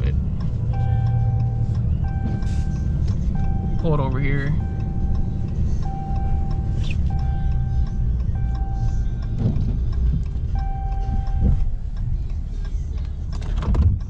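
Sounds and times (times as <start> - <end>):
truck engine rumble in cab: 0.0 - 14.0
warning tone long beeps: 0.1 - 9.3, 10.4 - 11.8.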